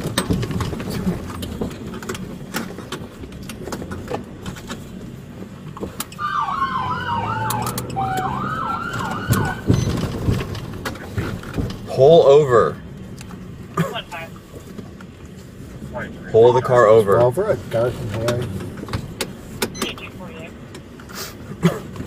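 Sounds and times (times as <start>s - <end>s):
police siren yelps: 6.1s - 10.1s.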